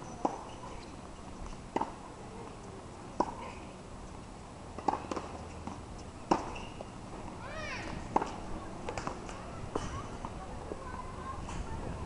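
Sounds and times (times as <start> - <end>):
tennis balls struck and bouncing: 1.5 - 2.0, 3.2 - 3.4, 4.7 - 10.4.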